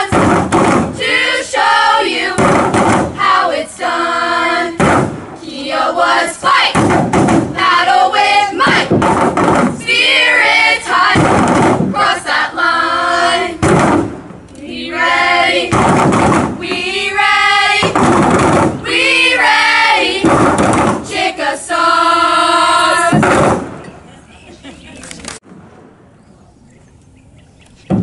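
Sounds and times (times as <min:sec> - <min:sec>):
girls chanting a cheer: 0:00.9 - 0:02.5, 0:03.1 - 0:04.8, 0:05.4 - 0:06.8, 0:07.5 - 0:08.9, 0:09.8 - 0:11.3, 0:11.9 - 0:13.6, 0:14.6 - 0:15.8, 0:16.6 - 0:17.9, 0:18.8 - 0:20.4, 0:21.0 - 0:23.2.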